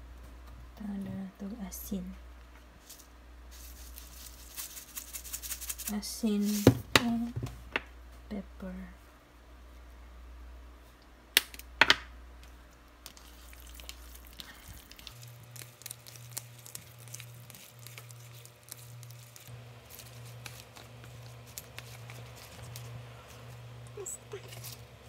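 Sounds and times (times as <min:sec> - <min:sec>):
low steady hum: 0:00.0 - 0:25.0
pepper shaker clicks: 0:03.9 - 0:06.6
hand squishing raw seafood: 0:13.0 - 0:22.9.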